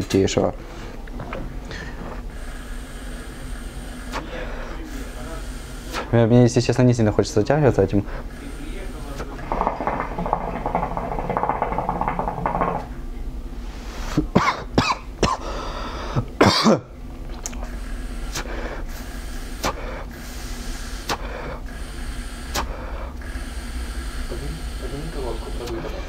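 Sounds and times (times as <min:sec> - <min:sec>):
hookah water bubbling: 0:01.0 - 0:06.1, 0:08.0 - 0:13.2, 0:17.0 - 0:26.0
man coughing: 0:14.3 - 0:15.5, 0:16.4 - 0:16.9.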